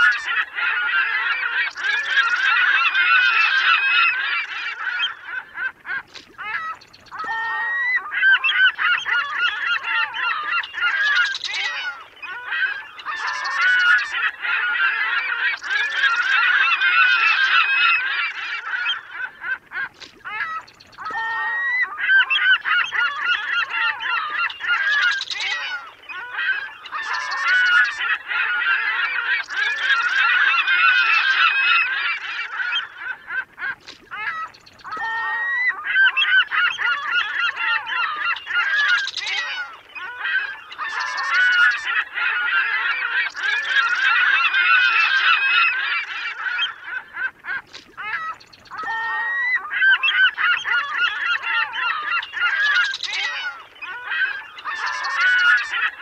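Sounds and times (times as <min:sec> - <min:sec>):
gulls squawking: 0:00.0 - 0:56.0.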